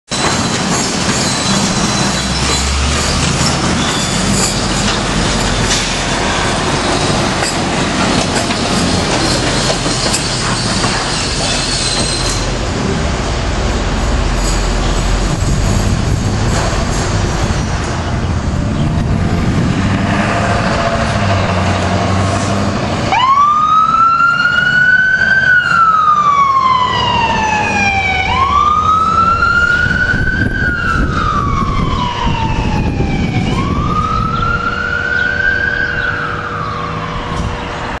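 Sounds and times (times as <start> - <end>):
fire truck engine rumble: 0.1 - 38.0
electronic siren wailing: 23.1 - 37.6.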